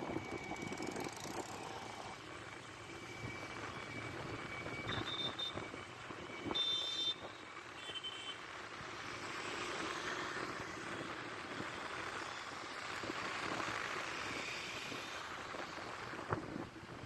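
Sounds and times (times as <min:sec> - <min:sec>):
road and wind noise: 0:00.0 - 0:17.0.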